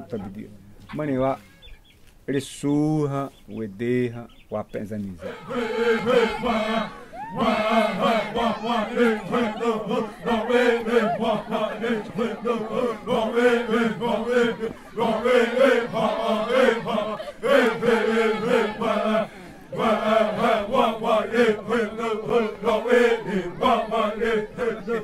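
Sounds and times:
group of voices chanting: 5.2 - 25.0.

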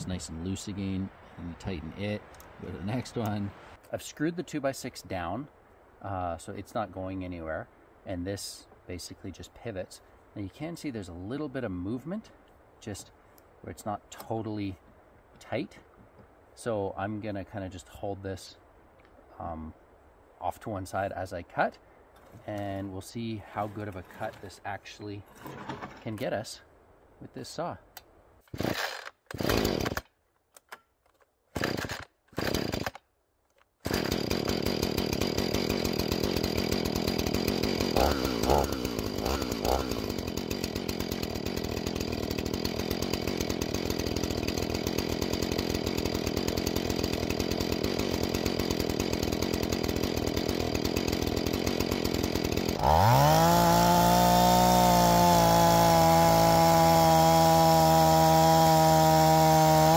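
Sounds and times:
chainsaw idling and revving: 28.6 - 30.1, 31.6 - 33.0, 33.8 - 59.9.

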